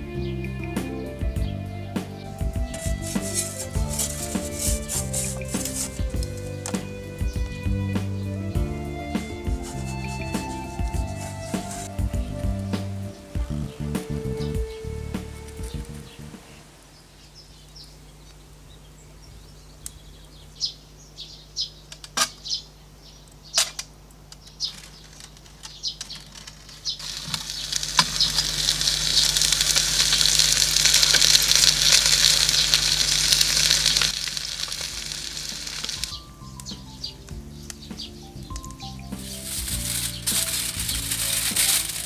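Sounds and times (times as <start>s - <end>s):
hissing crackle from wood-fired oven: 2.2s - 7.4s, 8.4s - 18.6s, 24.7s - 37.8s, 38.9s - 42.0s.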